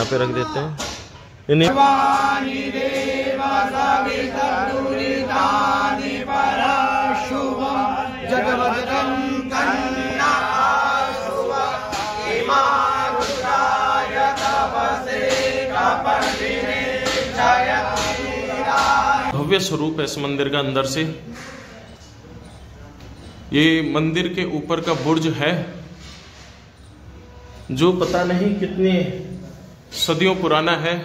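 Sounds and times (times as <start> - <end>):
men chanting in unison: 1.7 - 19.4.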